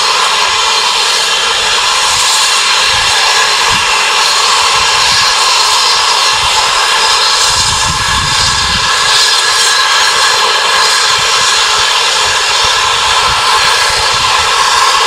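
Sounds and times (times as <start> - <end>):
steam hissing from safety valves: 0.0 - 15.0.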